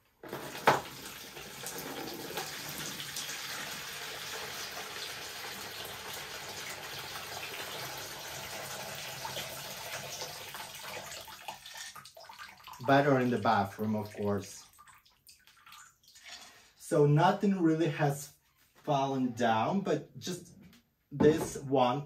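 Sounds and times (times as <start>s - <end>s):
water pouring into plastic bucket: 0.2s - 16.7s.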